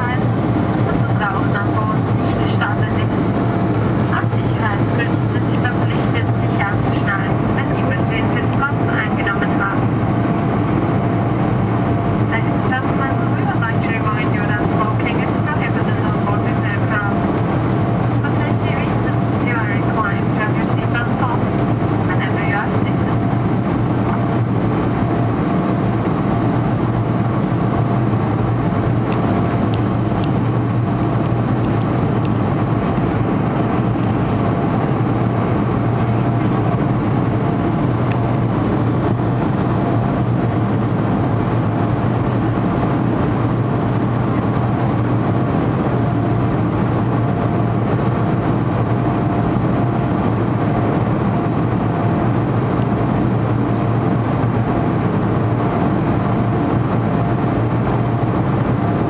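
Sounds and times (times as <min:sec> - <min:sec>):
jet engines droning: 0:00.0 - 0:59.0.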